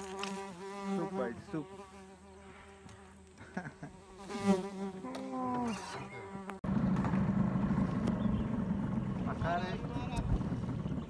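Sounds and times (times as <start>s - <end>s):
boat motor running: 6.6s - 11.0s.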